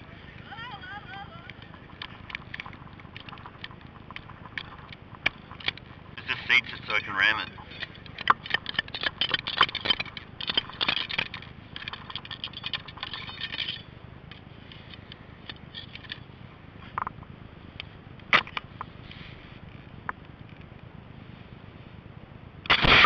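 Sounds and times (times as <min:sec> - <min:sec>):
ramrod scraping in rifle barrel: 0:01.5 - 0:13.9.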